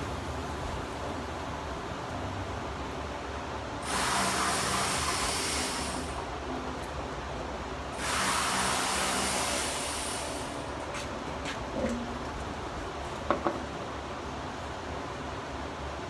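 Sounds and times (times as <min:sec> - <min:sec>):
pressurized spray hissing: 0:03.8 - 0:06.3, 0:08.0 - 0:10.7.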